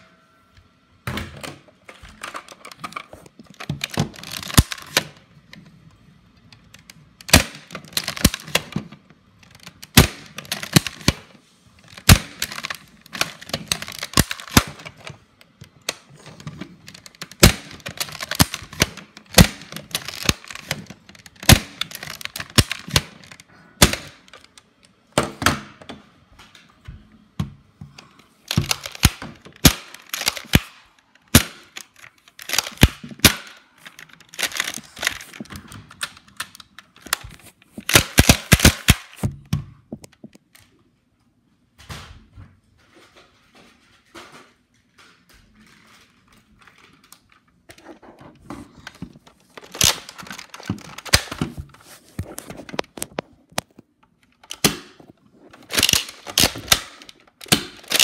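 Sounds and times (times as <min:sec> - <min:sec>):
toy blasters clacking and snapping: 0:03.6 - 0:05.2, 0:06.7 - 0:08.8, 0:09.4 - 0:15.2, 0:15.8 - 0:24.7, 0:28.5 - 0:39.2, 0:49.6 - 0:51.4, 0:55.6 - 0:58.0.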